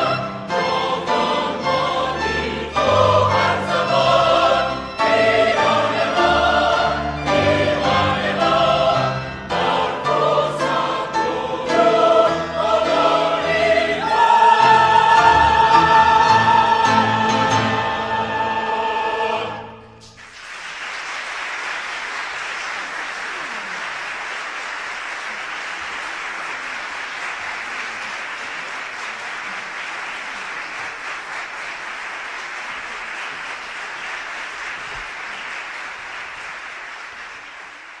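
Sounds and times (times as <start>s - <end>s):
choir and orchestra chord: 0.0s - 20.0s
audience applauding: 20.1s - 38.0s.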